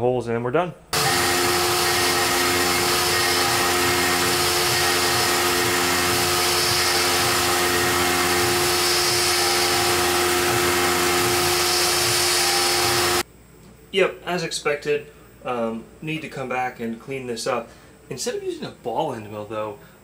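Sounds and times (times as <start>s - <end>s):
milling machine spindle whine: 1.0s - 13.2s.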